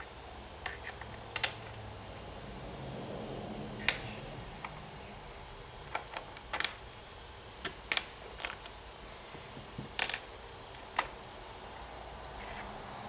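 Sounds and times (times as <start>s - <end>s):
plastic toys clicking on wooden table: 7.6s - 8.7s, 9.9s - 10.3s.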